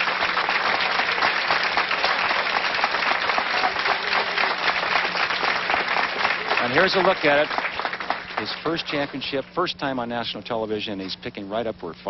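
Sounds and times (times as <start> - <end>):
crowd applauding: 0.0 - 9.4.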